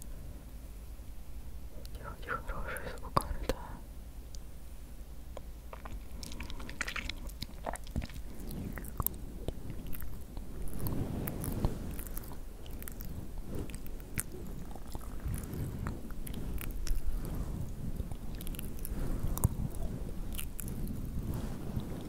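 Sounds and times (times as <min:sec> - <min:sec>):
fake cobweb fibre crackling: 0:05.7 - 0:22.0.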